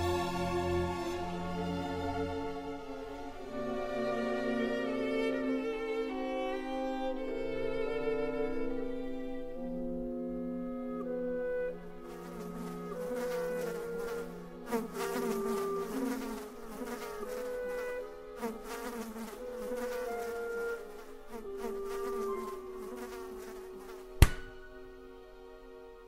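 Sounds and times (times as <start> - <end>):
buzzing drone: 11.1 - 24.8
rustling flurries: 12.0 - 24.1
sharp loud smack: 24.2 - 24.7.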